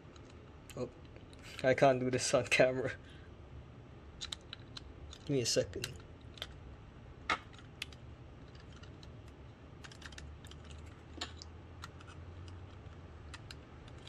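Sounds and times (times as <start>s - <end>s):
plastic parts clicking together: 4.2s - 6.6s, 7.3s - 14.0s.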